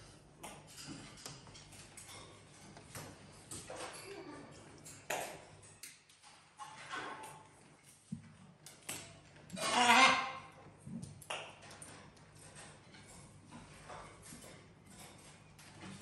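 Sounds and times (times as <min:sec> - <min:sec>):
parrots chirping and clicking: 0:00.0 - 0:16.0
parrot squawk: 0:09.6 - 0:10.4.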